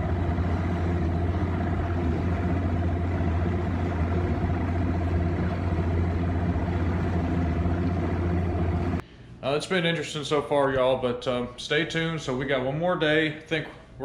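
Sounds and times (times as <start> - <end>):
engine running steadily: 0.0 - 9.0.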